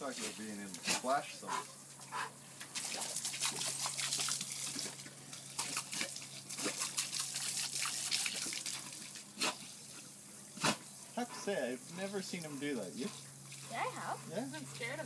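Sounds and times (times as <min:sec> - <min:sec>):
dog biting at water stream: 0:02.2 - 0:09.7.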